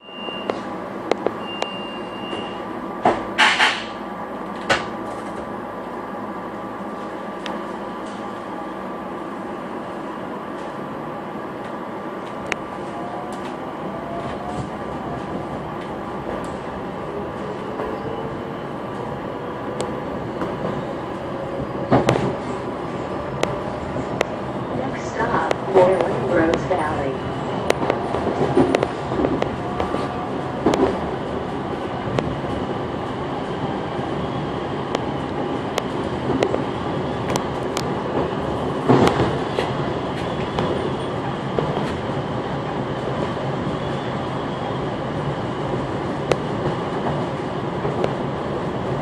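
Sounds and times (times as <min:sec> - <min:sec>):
short high beep: 0:00.0 - 0:00.6, 0:01.4 - 0:02.6
train doors sliding shut: 0:00.0 - 0:05.6, 0:11.6 - 0:32.8, 0:34.8 - 0:42.2.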